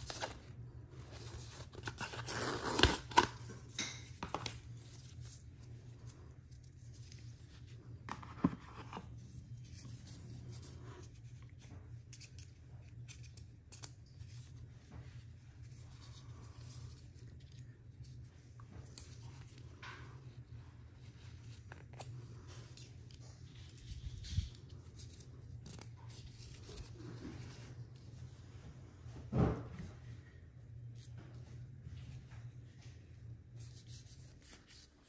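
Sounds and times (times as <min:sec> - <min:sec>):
packaging rustling and scraping: 0:00.0 - 0:12.5
faint low hum: 0:00.0 - 0:35.0.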